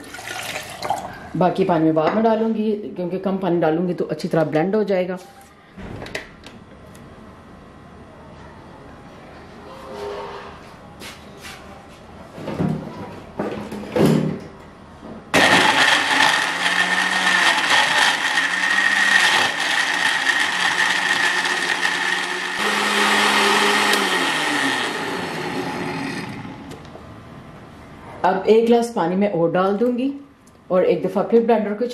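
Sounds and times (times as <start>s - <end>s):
blender blending ice: 15.4s - 26.8s.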